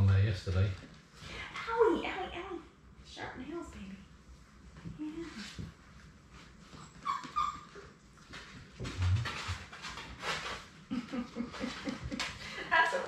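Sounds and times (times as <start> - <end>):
puppies whimpering and yipping: 6.8 - 8.0.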